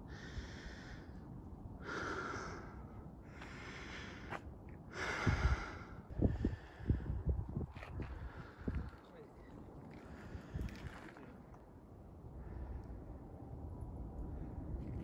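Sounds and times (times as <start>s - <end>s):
person breathing heavily: 0.0s - 1.2s, 1.8s - 7.4s.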